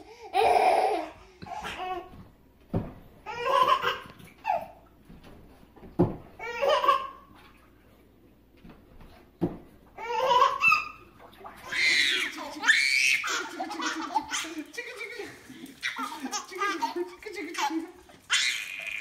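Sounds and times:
baby laughing: 0.1 - 2.1, 3.3 - 4.8, 6.4 - 7.3, 10.0 - 19.0.

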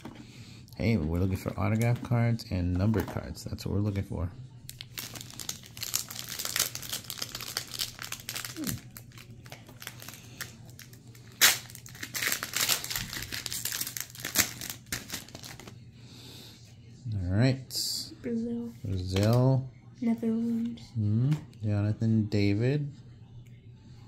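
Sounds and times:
foil wrapper crinkling and tearing: 4.7 - 15.7.

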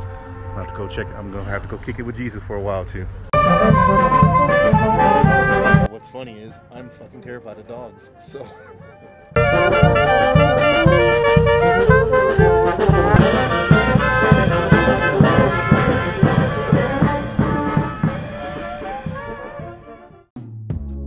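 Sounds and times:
steady bass beat: 3.3 - 5.9, 9.4 - 21.0
brass band playing: 3.3 - 20.3
music: 3.3 - 21.0.

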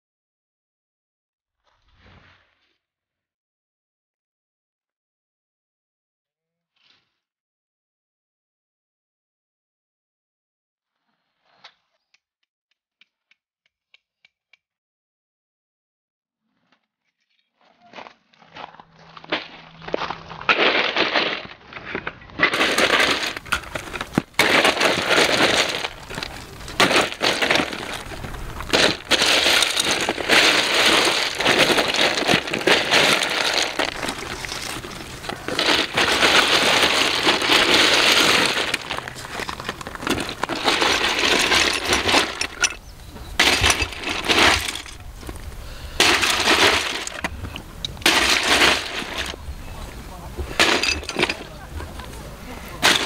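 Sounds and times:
ice cubes clattering and crunching: 19.2 - 53.0
glass bottles clinking: 22.5 - 53.0.

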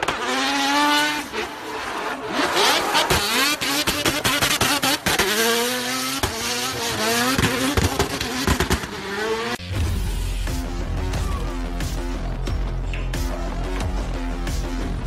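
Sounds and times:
car engine revving hard: 0.0 - 9.6
music with heavy bass: 9.6 - 15.0.

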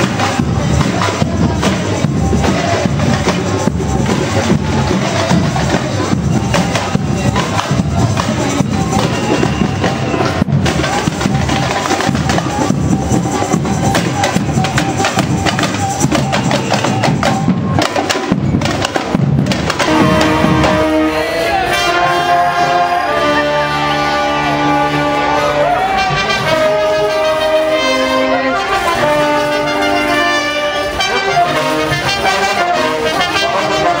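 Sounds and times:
fast drumming and percussion: 0.0 - 34.0.

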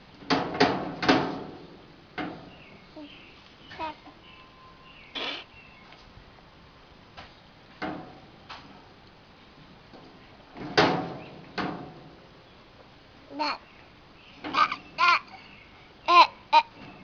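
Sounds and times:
baby vocalizing: 5.2 - 5.5, 14.5 - 15.4.

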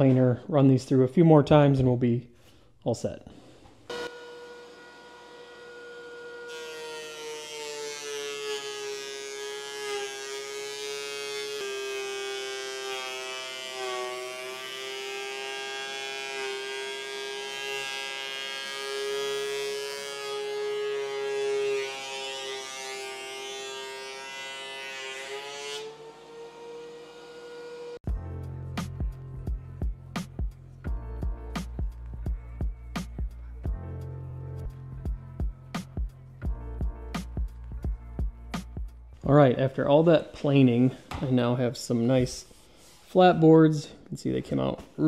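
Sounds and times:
planer motor whine: 3.9 - 24.2.

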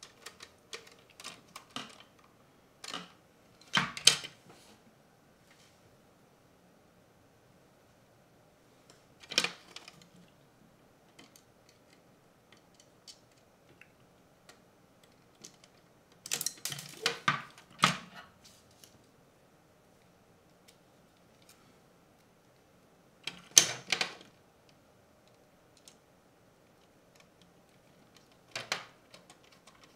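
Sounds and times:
plastic parts clicking and clacking: 0.0 - 4.4, 8.9 - 10.2, 11.1 - 18.1, 27.1 - 29.9.

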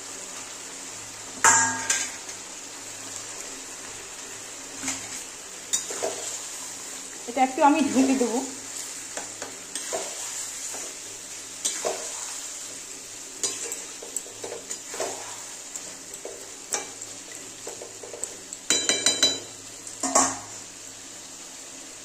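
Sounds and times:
frying hiss: 0.0 - 22.0
metal spatula scraping pan: 9.7 - 11.0, 11.6 - 12.5, 13.4 - 17.0.

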